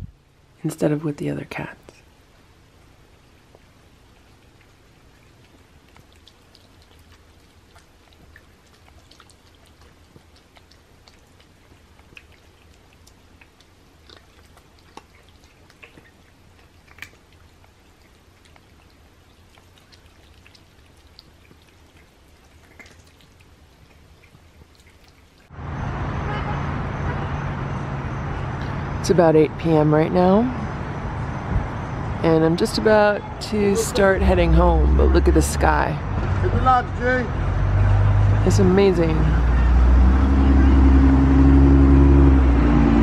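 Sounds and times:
outdoor traffic hum: 0:00.0 - 0:43.0
cats lapping and chewing: 0:01.9 - 0:25.5.

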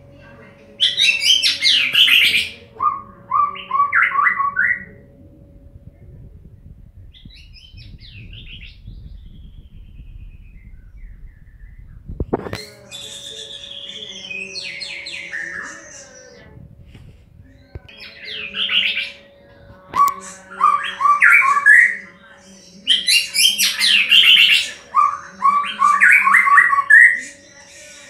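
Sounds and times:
bird singing whistled notes: 0:07.1 - 0:16.4, 0:20.0 - 0:28.0.

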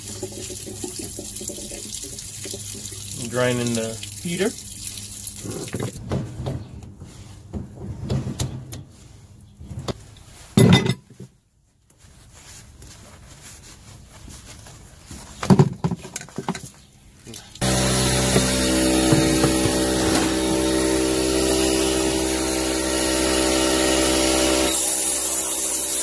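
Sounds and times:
handling knocks and rustling: 0:05.4 - 0:17.0, 0:18.3 - 0:20.7
loud thumps: 0:17.6 - 0:21.3.

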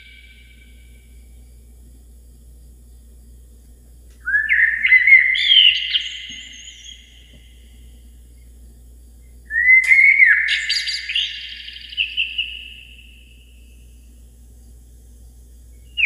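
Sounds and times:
faint low hum: 0:00.0 - 0:16.0
bird call: 0:04.2 - 0:07.4, 0:09.5 - 0:13.1.

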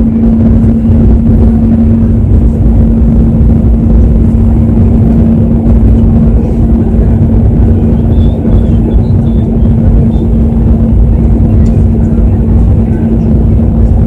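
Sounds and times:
airliner cabin engine rumble: 0:00.0 - 0:14.0
steady low hum: 0:00.0 - 0:14.0.

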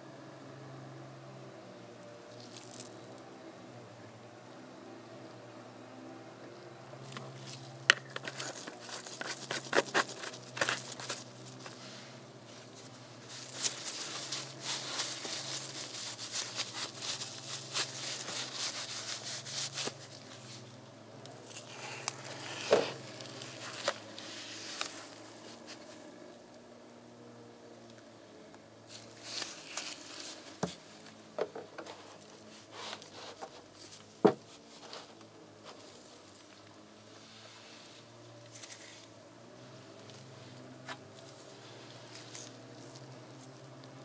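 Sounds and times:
paper towel rubbing on plastic: 0:12.7 - 0:20.6.

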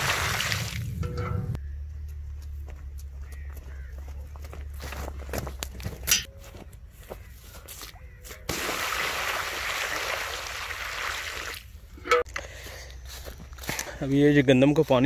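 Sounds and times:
water splashing onto soil: 0:00.0 - 0:00.9, 0:08.4 - 0:11.7
footsteps on grass: 0:01.9 - 0:08.5, 0:12.5 - 0:15.0.

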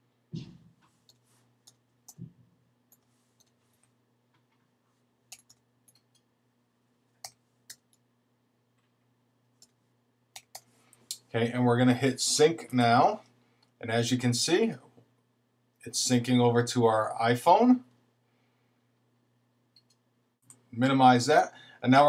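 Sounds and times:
faint steady hum: 0:00.0 - 0:22.0
computer keyboard keystrokes: 0:05.3 - 0:06.2.

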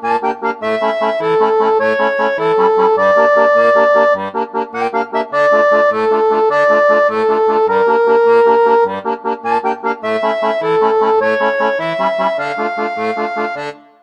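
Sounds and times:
accordion melody: 0:00.0 - 0:14.0.

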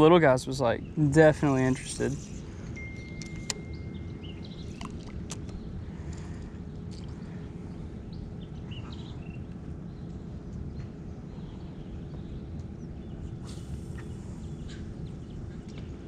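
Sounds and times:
steady low rumble: 0:00.0 - 0:16.0
bird chirps: 0:00.8 - 0:04.9.

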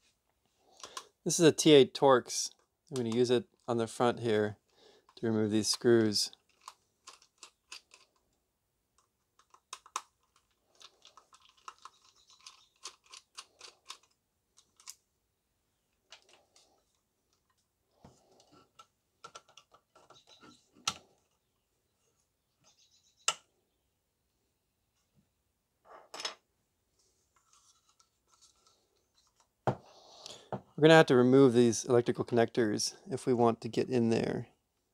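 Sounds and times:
sharp plastic clicks: 0:09.0 - 0:15.0.

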